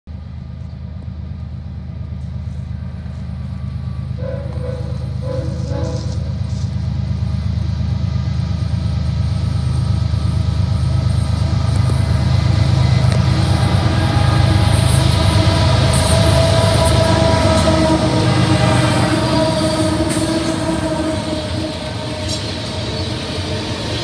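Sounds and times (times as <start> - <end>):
diesel locomotive engine rumble: 0.1 - 24.0
train horn blast: 3.9 - 7.0, 11.8 - 23.1.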